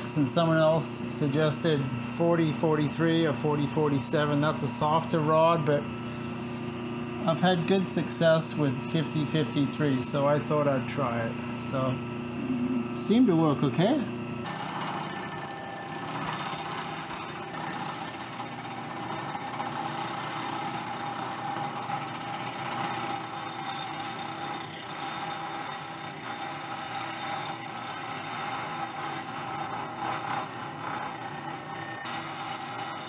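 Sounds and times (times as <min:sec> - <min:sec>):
milling machine cutting metal: 0:00.0 - 0:06.0, 0:13.0 - 0:33.0
constant machine hum: 0:00.0 - 0:33.0.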